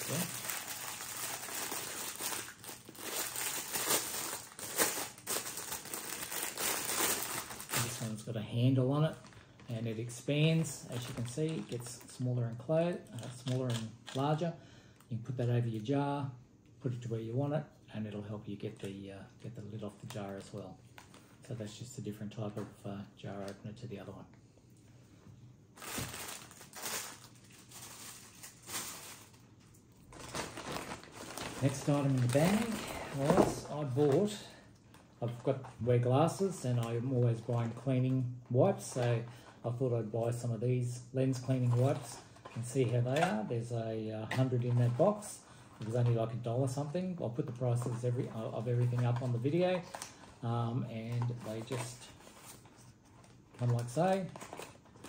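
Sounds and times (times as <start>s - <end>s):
plastic packaging crinkling: 0.0s - 14.4s, 25.8s - 39.6s, 47.4s - 55.0s.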